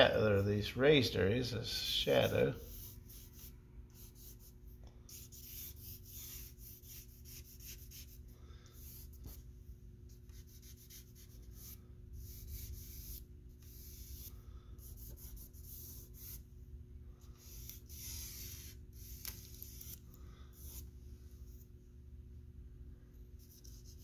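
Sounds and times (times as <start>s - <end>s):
charcoal scratching on paper: 2.2s - 9.4s, 10.1s - 16.4s, 17.3s - 20.9s, 23.4s - 24.0s.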